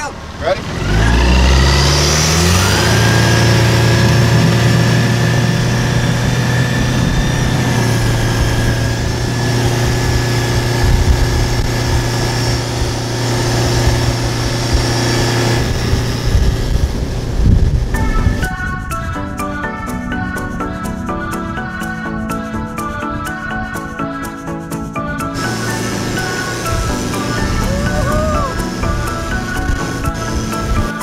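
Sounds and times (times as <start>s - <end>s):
outboard motor running: 0.0s - 18.4s, 25.4s - 31.0s
wind noise: 1.2s - 19.6s, 25.4s - 31.0s
water spray: 25.4s - 31.0s.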